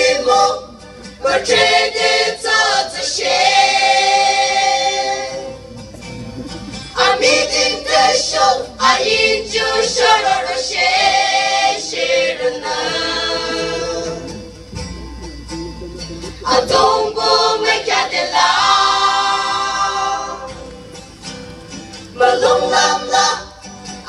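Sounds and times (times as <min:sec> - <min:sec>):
choir singing long held notes: 0:00.0 - 0:20.8, 0:22.0 - 0:23.7.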